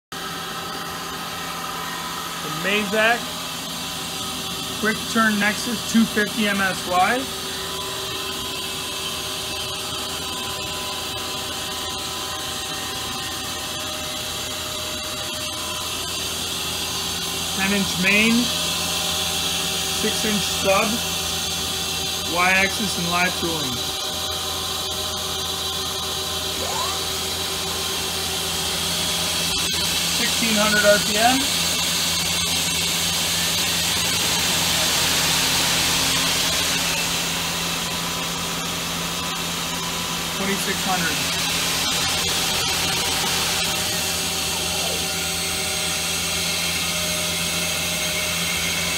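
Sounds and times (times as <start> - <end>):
lathe spindle spinning: 0.2 - 48.9
steady whining tones: 0.2 - 48.9
lathe machine hiss: 24.8 - 38.5.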